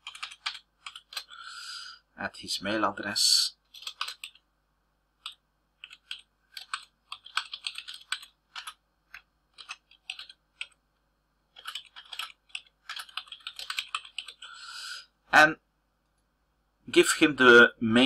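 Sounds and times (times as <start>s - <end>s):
keyboard typing: 0.0s - 1.4s, 3.6s - 4.5s, 5.2s - 10.8s, 11.5s - 14.5s.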